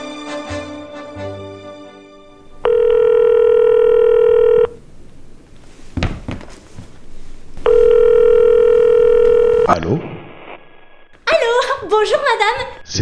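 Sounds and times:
music: 0.0s - 2.6s
telephone ringing: 2.6s - 4.8s, 7.6s - 9.7s.

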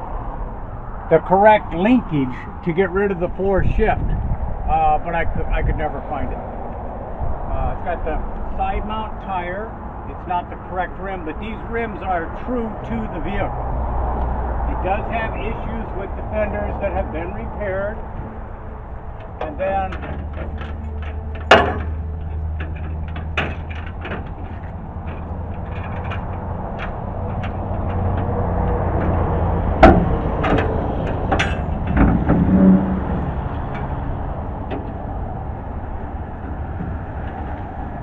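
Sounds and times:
metal tailgate clanks: 19.1s - 37.5s.

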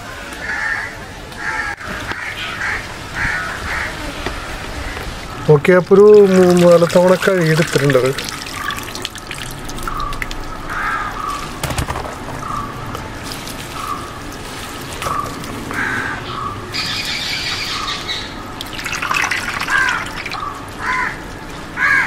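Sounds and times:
crow cawing: 0.4s - 5.4s, 9.9s - 11.6s, 12.4s - 12.8s, 13.8s - 14.1s, 15.1s - 18.4s, 19.1s - 22.0s
water sloshing and dripping: 4.5s - 21.8s.

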